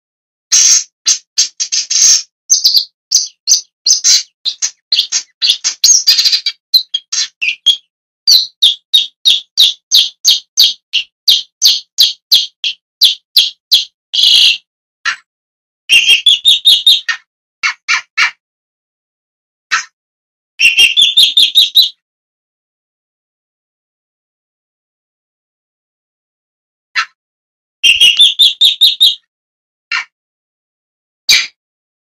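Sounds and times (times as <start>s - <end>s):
bird calling sharp notes: 0.5s - 15.2s, 15.9s - 18.4s, 20.6s - 22.0s, 27.8s - 29.2s.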